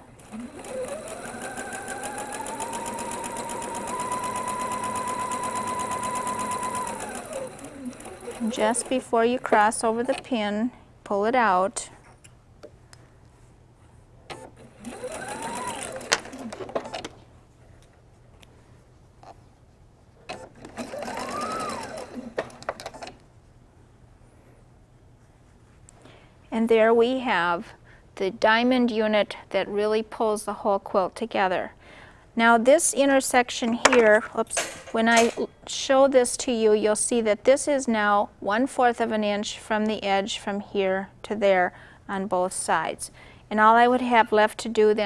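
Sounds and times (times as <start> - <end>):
sewing machine stitching: 0.2 - 10.2, 14.3 - 17.1, 20.3 - 23.2.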